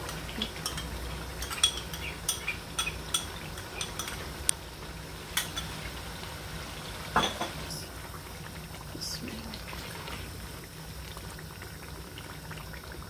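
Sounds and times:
curry sizzling faintly: 0:00.0 - 0:13.0
metal spoon clinking on bowl: 0:00.4 - 0:04.2.

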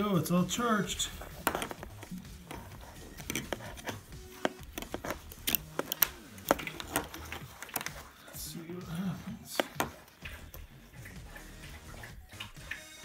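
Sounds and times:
faint music: 0:00.0 - 0:13.0
collar buckle clicks on stone: 0:01.2 - 0:08.0.

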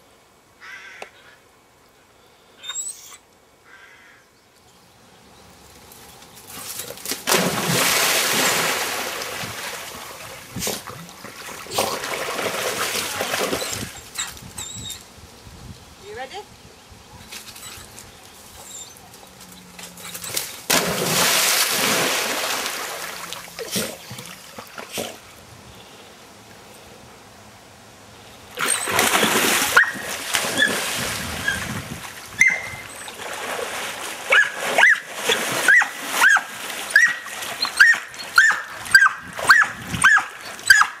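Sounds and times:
dog splashing into river: 0:06.4 - 0:14.2, 0:20.0 - 0:25.3, 0:28.6 - 0:40.9
dog swimming splashing: 0:06.5 - 0:14.0, 0:19.9 - 0:25.3, 0:28.6 - 0:41.0.

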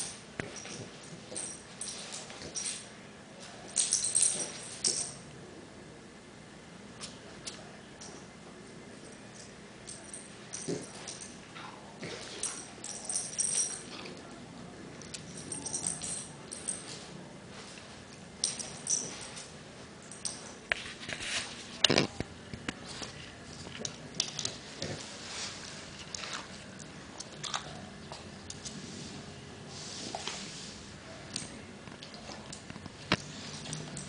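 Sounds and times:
collar tags jingling: 0:03.6 - 0:05.2, 0:12.2 - 0:14.2, 0:15.0 - 0:20.6.

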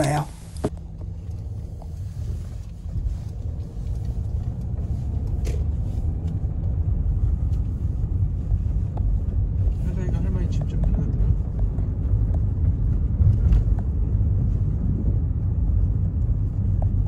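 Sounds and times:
engine and tyres rumbling: 0:00.0 - 0:17.0.

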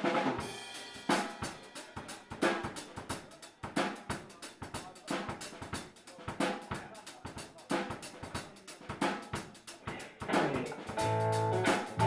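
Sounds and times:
drum kit beat: 0:00.0 - 0:12.0
bass guitar: 0:10.0 - 0:12.0
electric guitar: 0:10.3 - 0:12.0.

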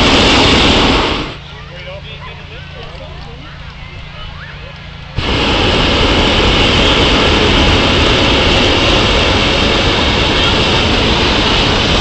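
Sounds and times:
propane burner blast: 0:00.0 - 0:02.1, 0:04.8 - 0:12.0.

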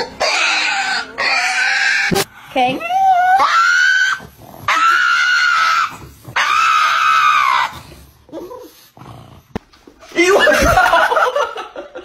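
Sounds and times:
dog howling: 0:02.8 - 0:07.8.

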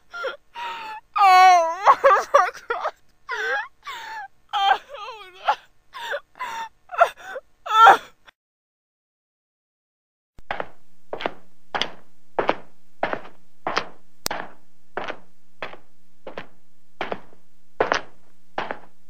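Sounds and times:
faint steady hum: 0:00.0 - 0:08.3, 0:10.4 - 0:19.0
high heels tapping on floor: 0:10.4 - 0:18.9.

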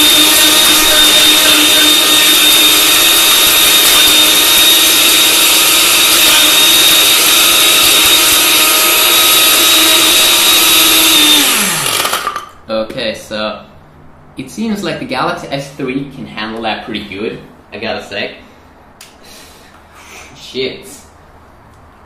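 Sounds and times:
blender motor spinning down: 0:00.0 - 0:12.5
blender motor whining: 0:00.0 - 0:12.5.

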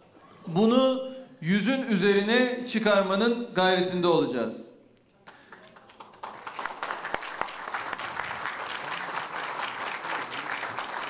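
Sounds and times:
audience applauding: 0:05.3 - 0:11.0.

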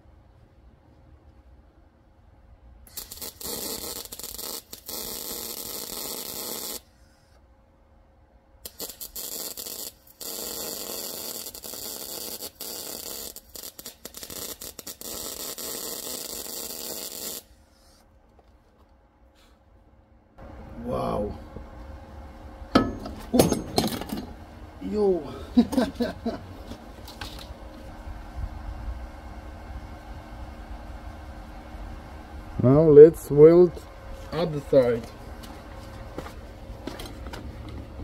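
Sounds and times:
welding arc stuttering strikes: 0:02.9 - 0:06.9, 0:08.6 - 0:17.6
arc welding crackling hiss: 0:02.9 - 0:07.4, 0:08.6 - 0:18.0.

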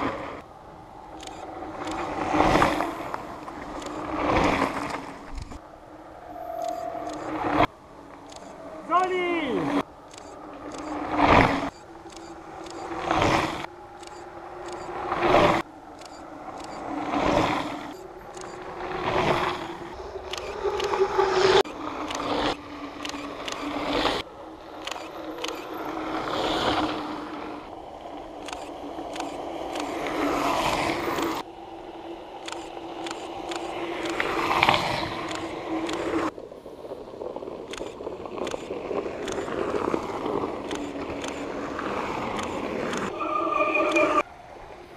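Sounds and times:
bike tyres crunching on gravel: 0:33.7 - 0:43.8.

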